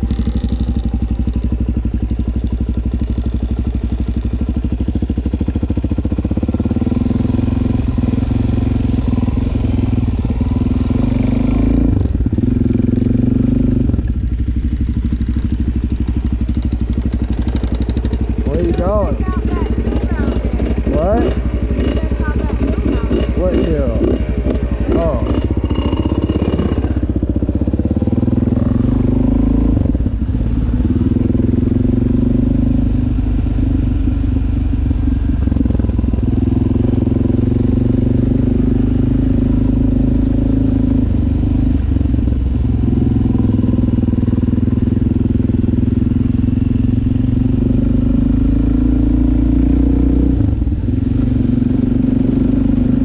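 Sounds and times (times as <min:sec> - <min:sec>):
dirt bike engine running: 0:00.0 - 0:53.0.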